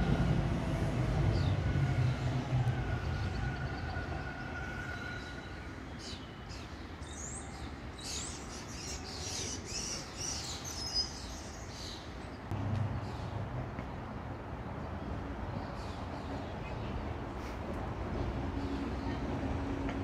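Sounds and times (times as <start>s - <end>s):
train rumbling on bridge: 0.0s - 7.0s, 12.2s - 20.0s.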